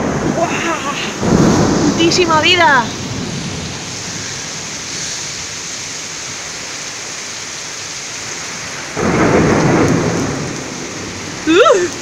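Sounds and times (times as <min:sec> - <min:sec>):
heavy rain falling: 0:00.0 - 0:12.0.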